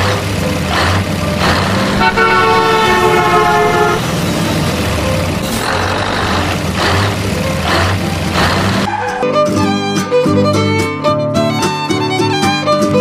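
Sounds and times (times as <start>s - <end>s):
truck engine humming: 0.0s - 10.9s
truck horn blast: 0.6s - 9.2s.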